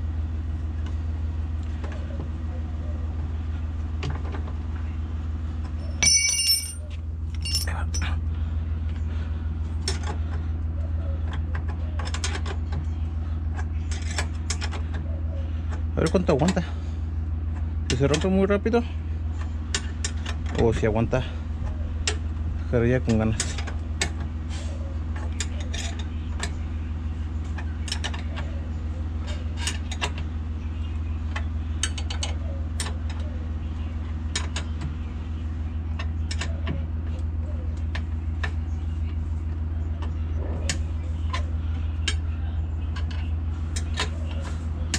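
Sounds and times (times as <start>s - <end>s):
metal parts and tools clinking: 5.8s - 8.2s
steady low hum: 5.8s - 10.9s.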